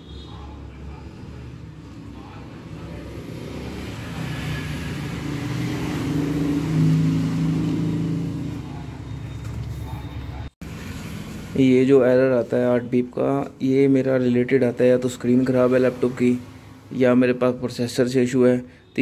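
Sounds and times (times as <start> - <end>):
vehicle engine humming: 0.6 - 11.9.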